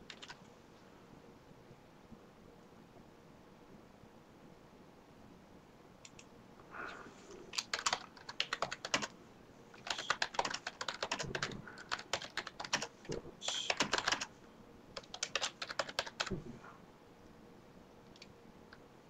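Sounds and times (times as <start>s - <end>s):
keyboard typing clicks: 0.0s - 0.4s, 6.0s - 6.3s, 7.5s - 9.1s, 9.8s - 12.9s, 13.5s - 14.3s, 15.0s - 16.4s.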